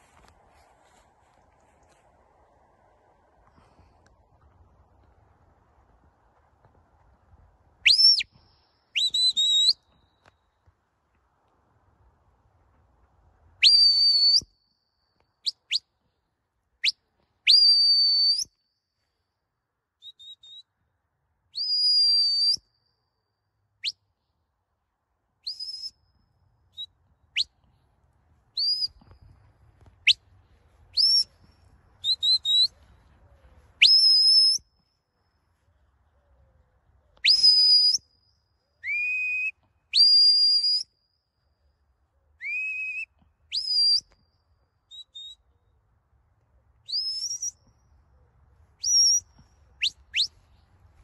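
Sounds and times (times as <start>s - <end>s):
sharp high whistle blasts: 7.9s - 10.3s, 13.6s - 14.8s, 33.8s - 34.7s, 37.2s - 38.2s, 38.8s - 40.9s.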